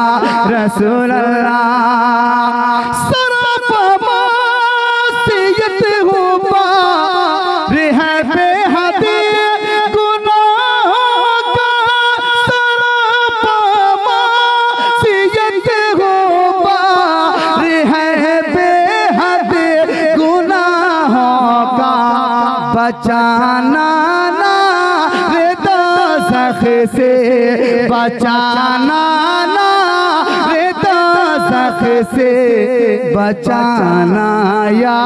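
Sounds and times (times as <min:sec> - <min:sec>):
man singing unaccompanied: 0:00.0 - 0:35.0.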